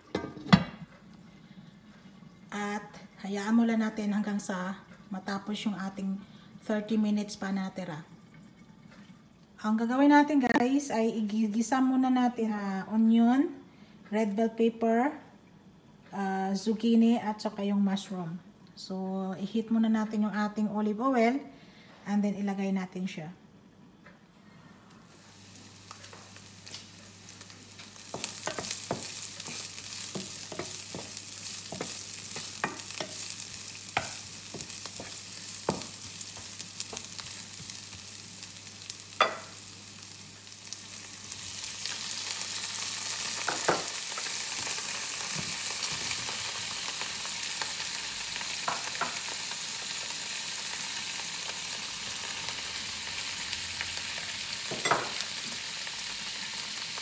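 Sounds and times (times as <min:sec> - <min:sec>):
onion sizzling in a frying pan: 0:25.0 - 0:57.0.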